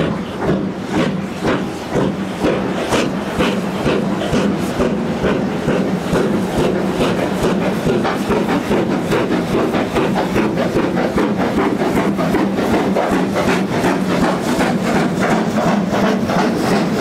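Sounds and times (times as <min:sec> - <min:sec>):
steam locomotive exhaust barking: 0:00.0 - 0:17.0.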